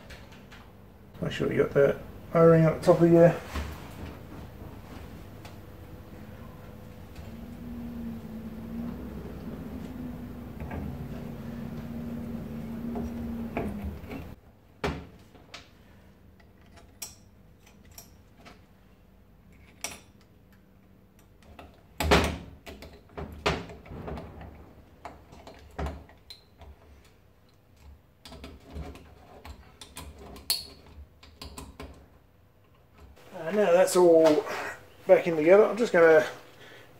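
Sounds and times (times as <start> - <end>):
low steady hum: 0.0 - 14.8
metal tools clicking and knocking: 16.5 - 18.4.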